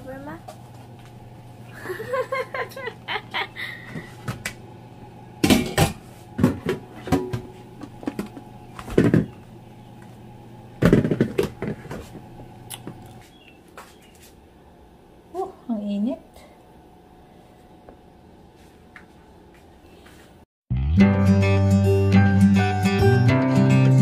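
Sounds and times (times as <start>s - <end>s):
steady low hum: 0.0s - 20.4s
kitchenware knocking and clattering: 5.4s - 7.4s.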